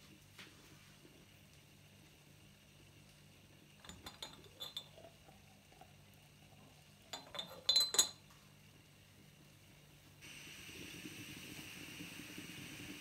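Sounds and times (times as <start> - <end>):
ceramic or glass clinking: 3.8 - 5.1, 7.1 - 8.2.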